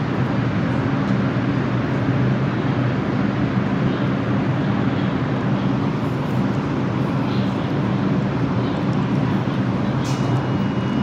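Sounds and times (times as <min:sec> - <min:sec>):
subway train hum and rumble: 0:00.0 - 0:11.0.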